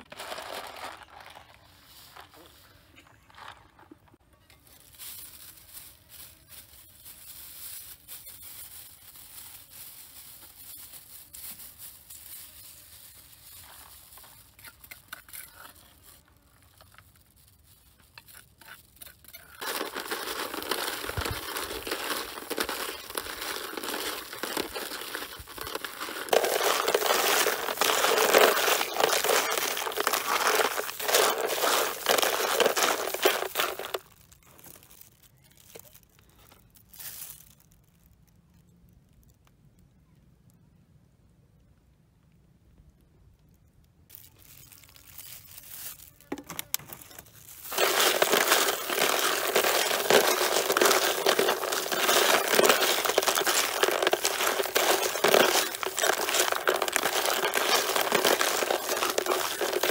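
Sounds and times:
plastic bag crinkling: 0:00.0 - 0:38.4, 0:44.1 - 0:59.9.

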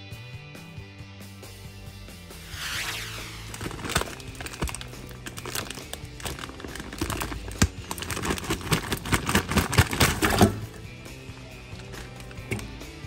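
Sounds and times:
plastic bag crinkling: 0:03.4 - 0:10.6
meat landing in metal pot: 0:08.7 - 0:10.9.

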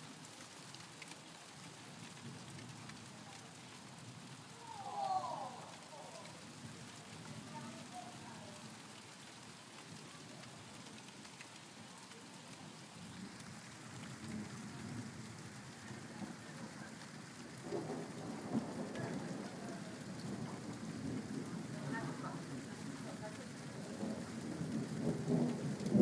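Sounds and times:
steady rain falling: 0:00.0 - 0:26.0
thunder rumbling: 0:17.6 - 0:26.0.

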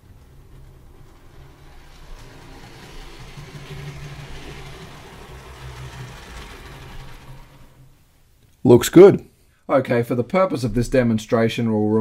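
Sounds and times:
hiss: 0:00.0 - 0:08.2
model train wheels rumbling: 0:00.0 - 0:09.4.

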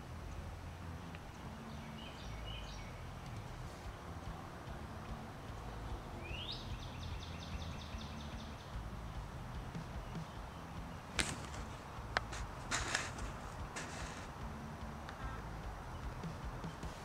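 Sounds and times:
bird singing: 0:00.0 - 0:17.0
steady low rumble: 0:00.0 - 0:17.0
sharp clicks: 0:11.1 - 0:14.4.

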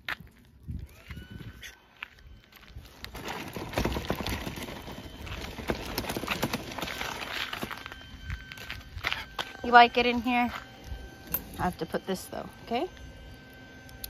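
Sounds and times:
footsteps on gravel: 0:00.0 - 0:10.9
stroller rustling and knocking: 0:02.9 - 0:08.6.

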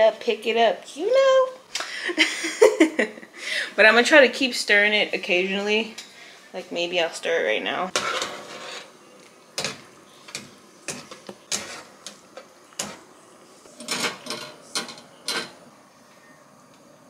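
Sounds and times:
spoon stirring pasta: 0:08.0 - 0:15.5.

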